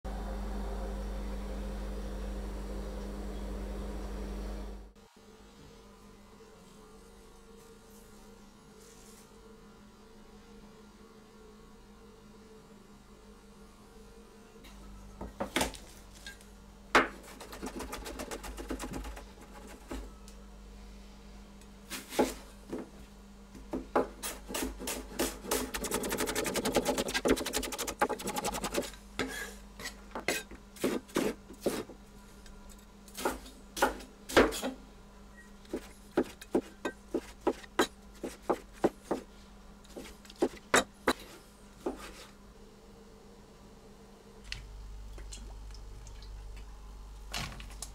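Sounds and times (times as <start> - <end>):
steady low hum: 0.1 - 9.0, 9.6 - 47.9
knife chopping on wooden board: 24.0 - 28.9, 35.7 - 39.3.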